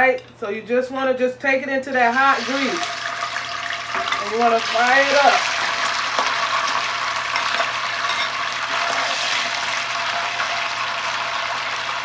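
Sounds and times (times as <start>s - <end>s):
tofu sizzling in hot oil: 2.4s - 12.0s
metal spoon stirring in pan: 6.0s - 9.4s.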